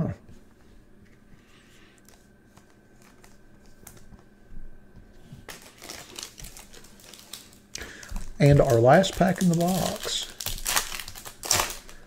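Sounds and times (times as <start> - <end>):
foil wrapper crinkling: 2.0 - 4.2, 5.4 - 12.0.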